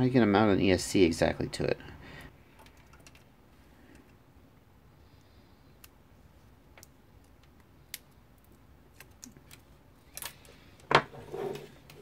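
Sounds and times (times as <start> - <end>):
light clicks of handling wires: 5.2 - 11.0.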